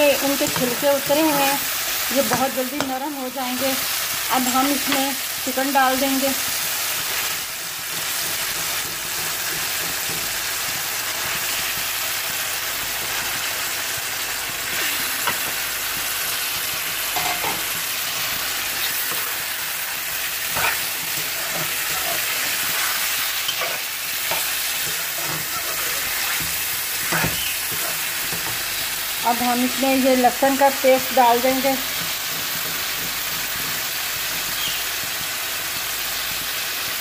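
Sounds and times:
food sizzling in hot oil: 0.0 - 37.0
spatula scraping a metal pan: 20.3 - 28.6.

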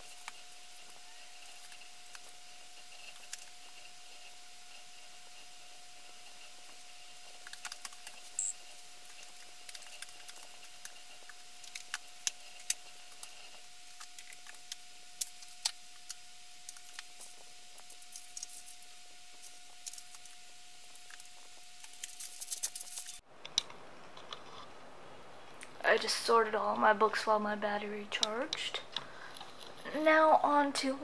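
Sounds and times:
thin steady tone: 8.2 - 9.0.

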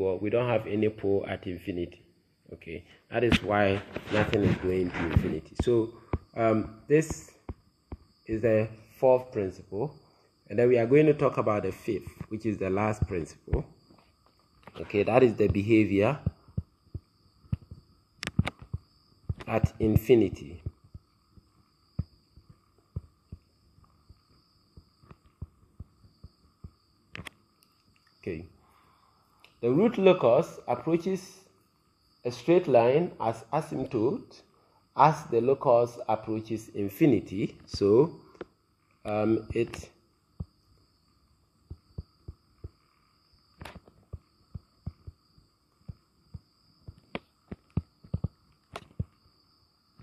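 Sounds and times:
faint electronic hum: 0.0 - 50.0
faint high whine: 0.0 - 50.0
stylus tapping on screen: 7.0 - 8.1, 20.6 - 23.5, 24.8 - 27.3, 41.6 - 42.8, 43.6 - 45.2, 45.8 - 49.1.

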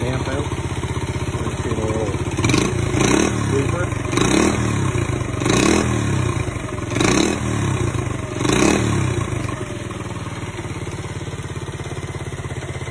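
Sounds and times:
small motorbike engine revving and idling: 0.0 - 12.9.

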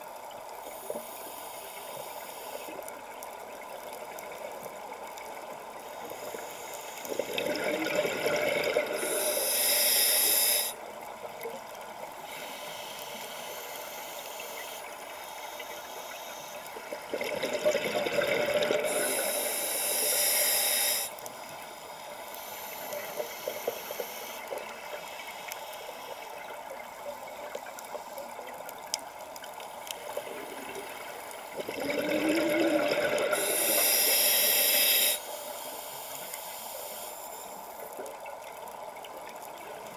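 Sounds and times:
water noise: 0.0 - 39.9
regulator hiss: 0.6 - 3.2, 5.4 - 10.9, 12.1 - 17.1, 18.2 - 28.5, 32.5 - 37.9
diver breathing through regulator: 6.1 - 10.8, 12.2 - 16.7, 18.2 - 26.2, 31.8 - 37.7
bubbling: 7.1 - 9.7, 17.0 - 20.6, 30.1 - 34.7.

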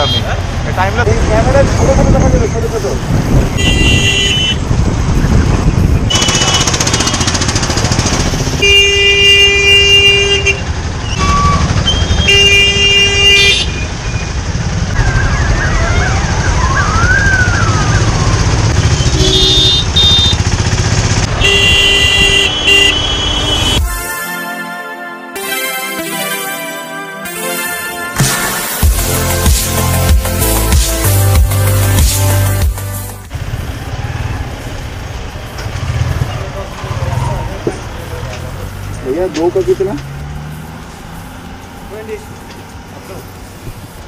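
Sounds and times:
vehicle horns honking: 0.0 - 0.5, 3.5 - 4.8, 6.0 - 7.5, 8.5 - 14.0, 18.8 - 20.5, 21.3 - 28.9
wind rumble: 1.0 - 8.5
motorcycle engine: 3.2 - 23.9, 32.5 - 43.5.

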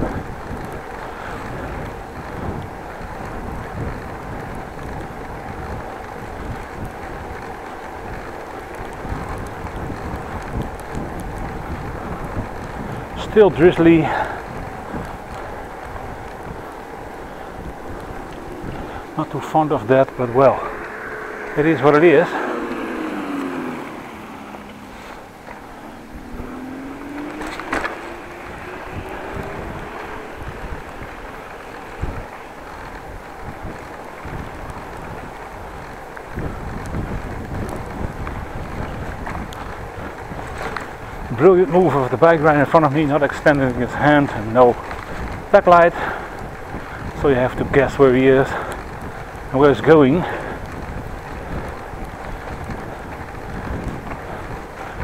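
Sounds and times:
bicycle tyres on wet street: 0.0 - 55.0
wind on microphone: 0.0 - 55.0
faint rising tone: 17.0 - 32.6.

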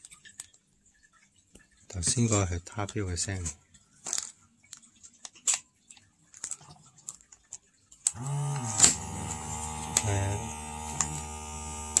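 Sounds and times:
massager electric hum: 8.1 - 12.0.

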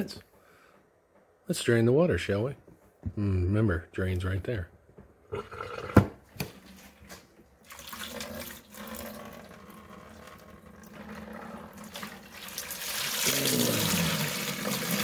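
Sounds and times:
water splashing into plastic bucket: 7.6 - 9.6, 11.7 - 15.0.

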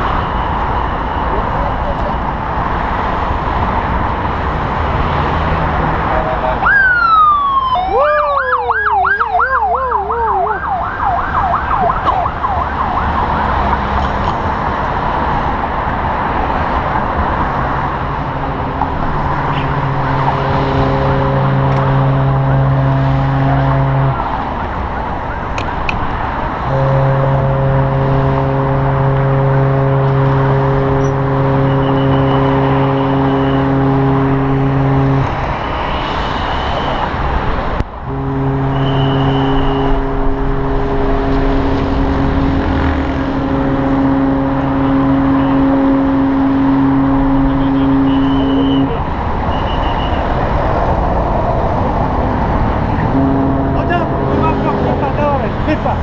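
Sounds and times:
emergency vehicle siren: 0.0 - 4.7, 5.3 - 56.0
loud steady background noise: 0.0 - 56.0.

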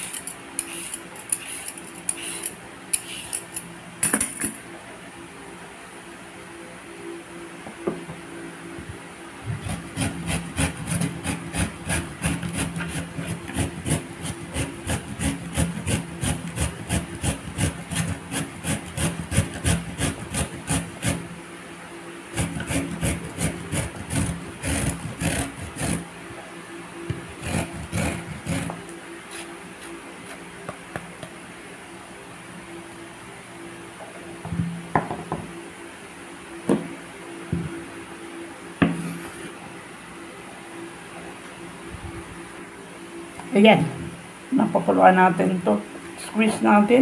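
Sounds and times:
carrot rasping on a grater: 0.0 - 3.4, 9.6 - 21.3, 22.3 - 26.1, 27.3 - 29.5.

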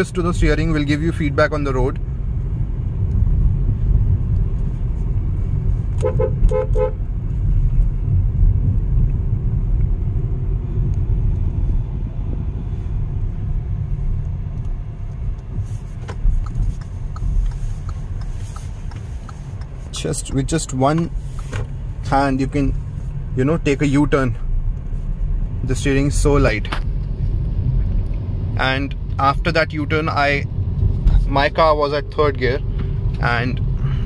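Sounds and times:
car engine and road noise: 0.0 - 34.0
car horn toots: 6.0 - 7.1.

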